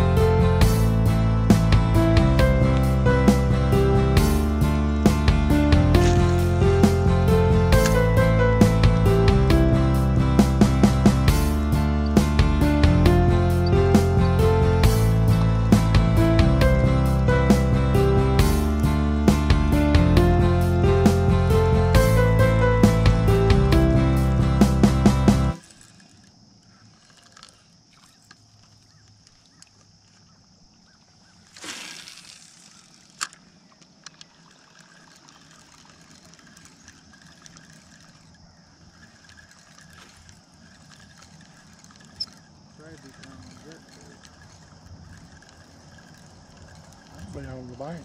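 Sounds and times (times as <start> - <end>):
faint water sounds: 0.0 - 19.0, 25.5 - 48.0
plucked string music with bass: 0.0 - 25.6.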